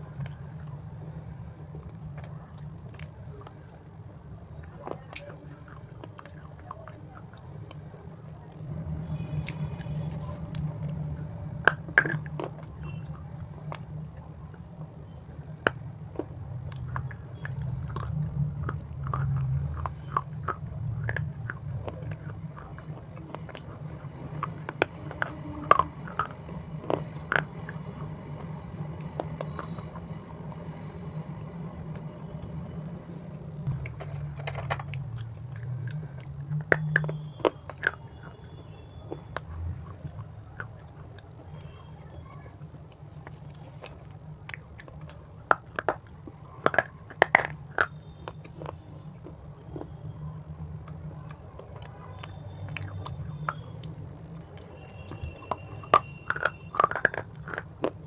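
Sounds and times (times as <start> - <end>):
chewing crunchy snack: 0.0 - 58.0
mouth clicks: 42.9 - 58.0.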